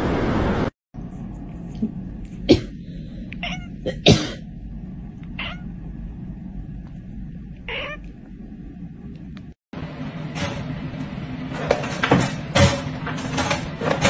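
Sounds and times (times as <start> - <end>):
person coughing: 2.4 - 2.8, 3.8 - 4.5
cat meowing raspily: 3.4 - 3.9, 5.4 - 5.7, 7.7 - 8.1.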